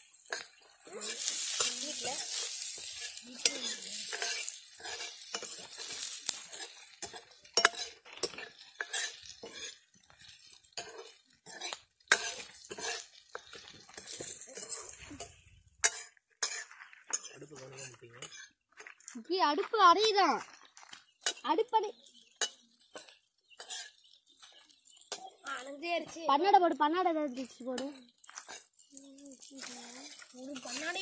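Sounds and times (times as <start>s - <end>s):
onions sizzling in oil: 0.0s - 17.3s, 20.6s - 31.0s
ladle scraping and knocking pan: 0.0s - 18.5s, 22.4s - 24.0s.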